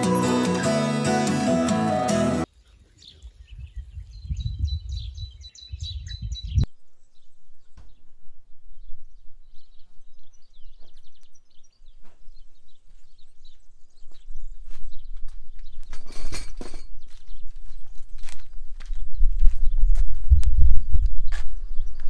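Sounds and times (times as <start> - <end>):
songbirds chirping and singing: 0.0 - 8.0, 9.5 - 15.9.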